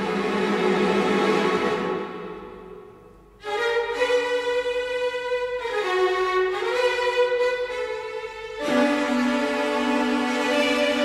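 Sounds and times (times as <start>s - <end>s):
bowed strings with violin: 0.0s - 11.0s.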